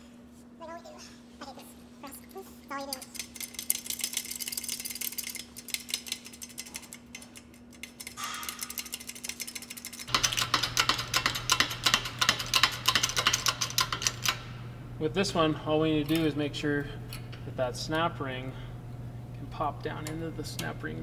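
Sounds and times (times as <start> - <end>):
steady low hum: 0.0 - 21.0
hydraulic press clicking and rattling: 2.8 - 14.5.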